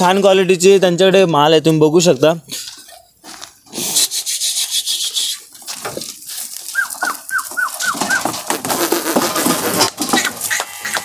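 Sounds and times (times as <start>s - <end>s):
goats shuffling: 0.0s - 11.0s
clicks and rustling: 5.6s - 11.0s
high falling goat calls: 6.6s - 11.0s.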